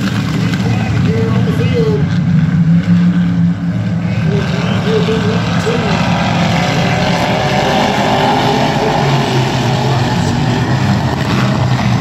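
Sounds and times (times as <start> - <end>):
race car engines droning: 0.0 - 12.0.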